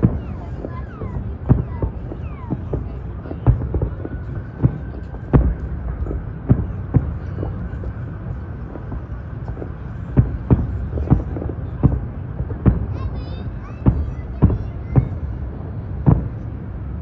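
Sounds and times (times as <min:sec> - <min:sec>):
fireworks bursting: 0:00.0 - 0:17.0.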